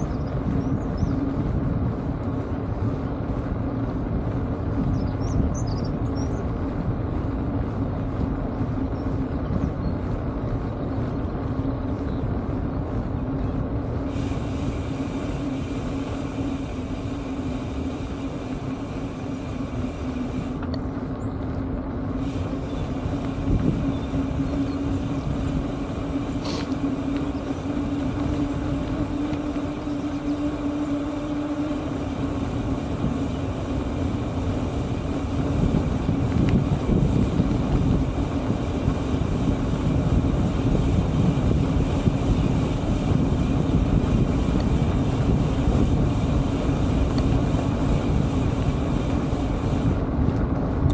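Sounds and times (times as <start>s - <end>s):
bike tyres rolling on asphalt: 0.0s - 50.9s
constant low hum: 0.0s - 50.9s.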